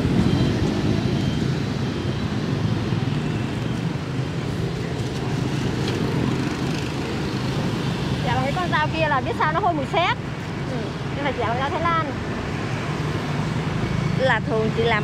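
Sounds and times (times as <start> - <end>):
motorbike engines running: 0.0 - 15.0.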